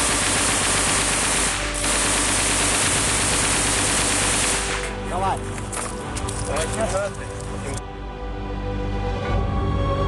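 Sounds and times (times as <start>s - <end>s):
machine gun automatic fire: 0.0s - 5.0s.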